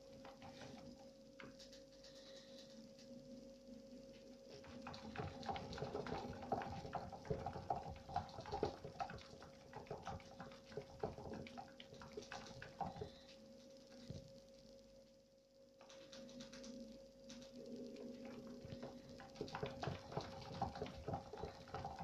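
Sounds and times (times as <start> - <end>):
rat feet pattering on running wheel: 0.0 - 2.7, 4.5 - 14.3, 15.8 - 22.0
plastic wheel spinning: 4.6 - 13.2, 18.4 - 22.0.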